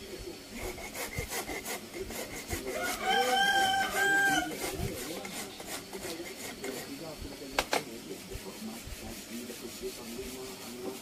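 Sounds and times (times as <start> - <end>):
rasp filing wood: 0.1 - 7.3, 8.1 - 11.0
rooster crowing: 2.7 - 4.6.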